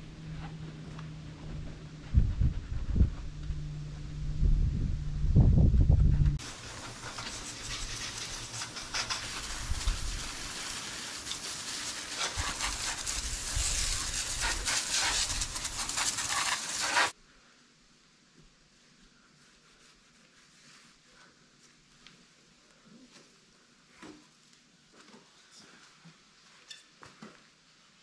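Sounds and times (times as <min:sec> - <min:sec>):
hose spraying water: 0:06.4 - 0:17.2.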